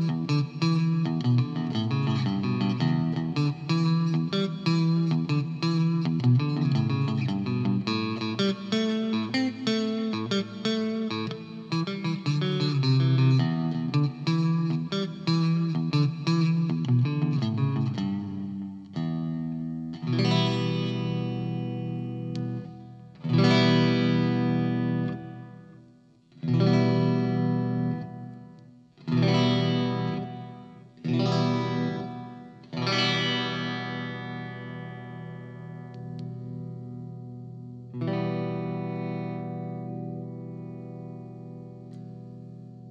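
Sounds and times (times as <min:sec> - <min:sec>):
amplified electric guitar: 0:00.0 - 0:42.9.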